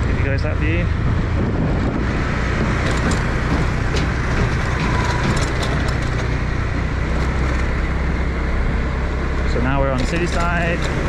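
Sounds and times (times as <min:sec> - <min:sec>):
road noise: 0:00.0 - 0:11.0
wind noise: 0:00.0 - 0:11.0
motor scooter engine running: 0:00.9 - 0:11.0
light rattles and clicks: 0:02.6 - 0:07.9, 0:09.5 - 0:11.0.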